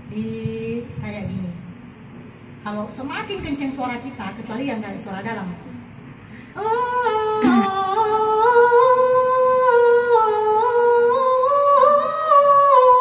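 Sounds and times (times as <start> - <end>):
woman singing a long note: 6.6 - 13.0.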